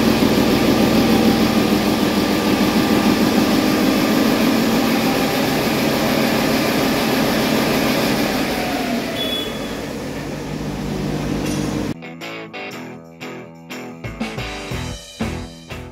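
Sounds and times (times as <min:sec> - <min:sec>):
diesel engine whining: 0:00.0 - 0:12.0
music jingle: 0:12.0 - 0:15.9.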